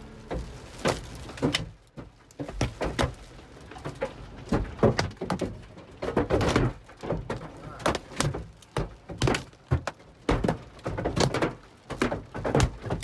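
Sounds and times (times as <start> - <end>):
heavy rain hiss: 0.0 - 1.8
hail knocking on car: 0.2 - 13.0.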